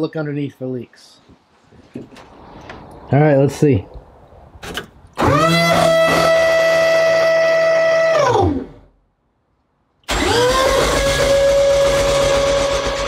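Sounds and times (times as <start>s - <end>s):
car engine starter whir: 4.6s - 7.0s, 10.0s - 13.0s.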